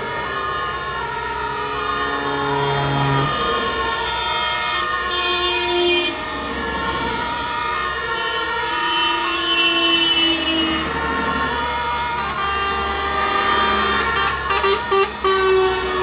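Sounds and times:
buses and trucks driving past: 0.0 - 16.0
fire engine sirens: 0.0 - 16.0
vehicle horns: 2.1 - 3.5, 4.1 - 6.2, 8.1 - 16.0.

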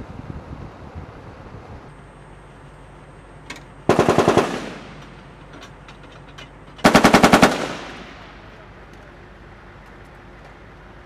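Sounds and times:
gunfire echo: 3.9 - 5.2, 6.8 - 8.5
heavy machine gun bursts: 3.9 - 5.5, 6.8 - 8.6.

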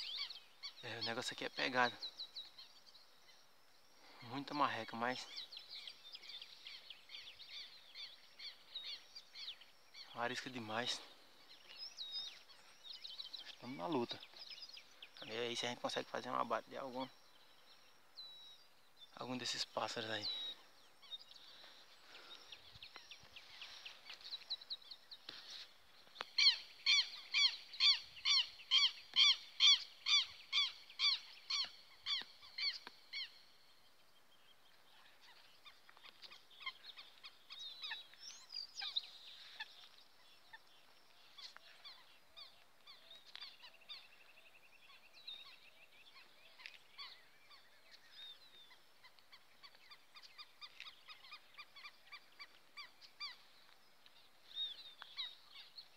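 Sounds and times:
faint bird calls: 0.0 - 55.9
bird calling loudly: 26.1 - 33.4.

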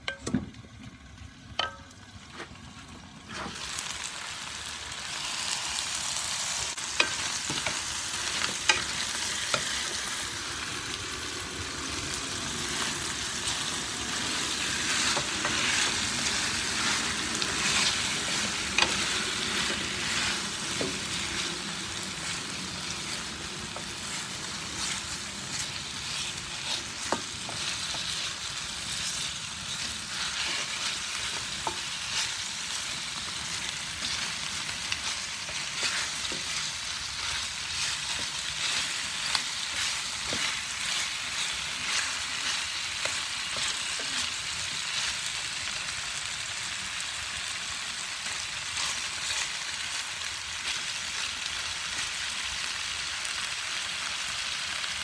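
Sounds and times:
chopsticks tapping pan: 0.0 - 0.6, 1.6 - 1.9, 6.9 - 10.0, 14.9 - 28.4, 34.9 - 41.1
chicken sizzling in oil: 0.0 - 55.0.

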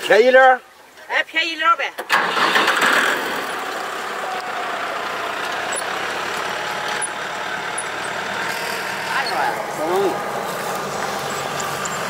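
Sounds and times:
tractor engine running: 2.0 - 12.0.

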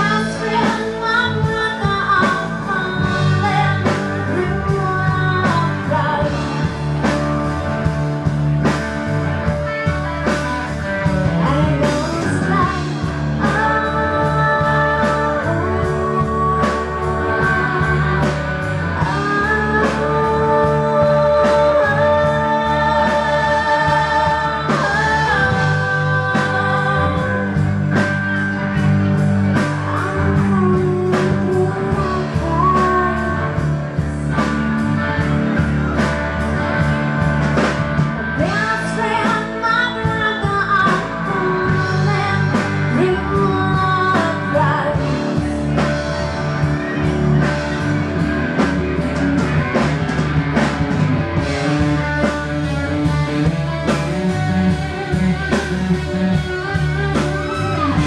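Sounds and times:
woman singing: 0.0 - 6.8, 10.4 - 35.3, 38.4 - 45.9, 51.7 - 58.0
live band playing: 0.0 - 58.0.

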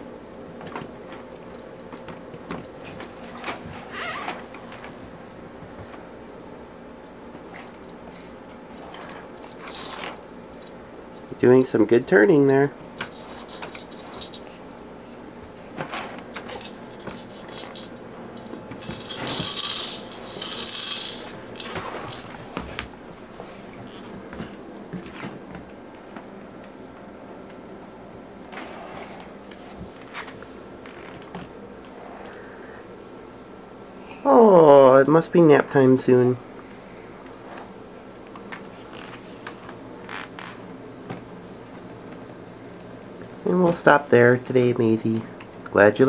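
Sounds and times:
plastic toys clicking and tapping: 18.8 - 22.3
plastic bead rattle: 18.8 - 22.4.

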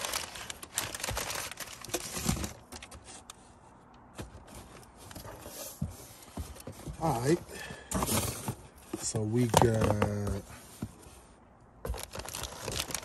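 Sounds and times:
packing paper crumpling: 0.0 - 3.0, 11.9 - 13.0.

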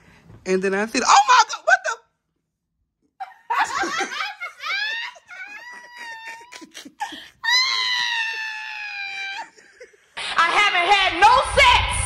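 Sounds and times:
people laughing and giggling: 3.2 - 10.2.

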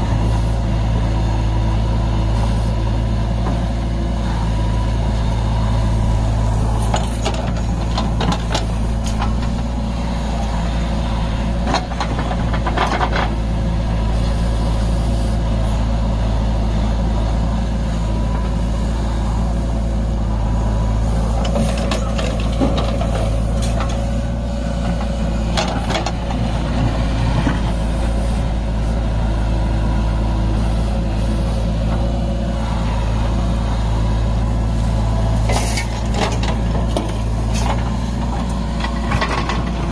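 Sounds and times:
diesel engine running: 0.0 - 39.9
knocks and clanks: 6.9 - 9.6.

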